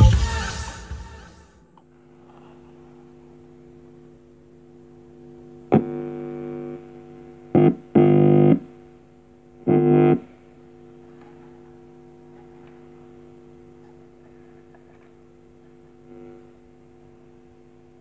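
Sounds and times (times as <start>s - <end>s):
faint amplifier hum: 0.0s - 18.0s
loud electric buzz from speaker: 0.0s - 18.0s.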